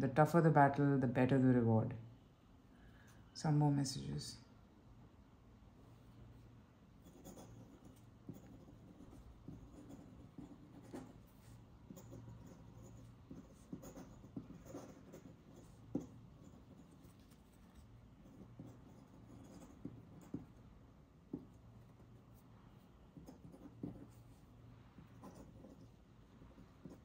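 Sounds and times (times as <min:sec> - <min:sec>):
pen nib scratching paper: 0:07.0 - 0:20.7, 0:23.1 - 0:27.0.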